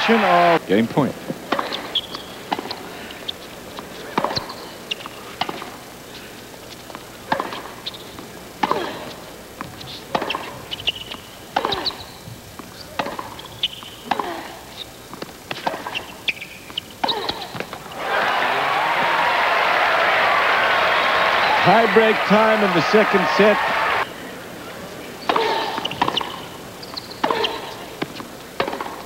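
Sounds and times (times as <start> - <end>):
shoe squeaks: 1.5 - 17.8, 25.2 - 28.8
tennis ball struck and bouncing: 4.1 - 5.8, 6.9 - 14.3, 15.1 - 17.9, 25.2 - 29.0
crowd murmuring: 17.2 - 28.2.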